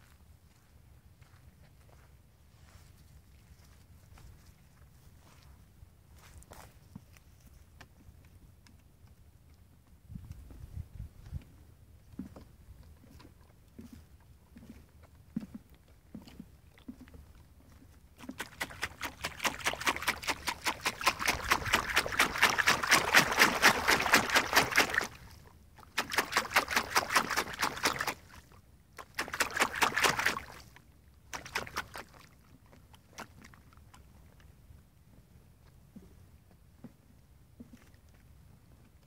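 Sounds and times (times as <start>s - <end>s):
dog lapping water: 18.2s - 34.2s.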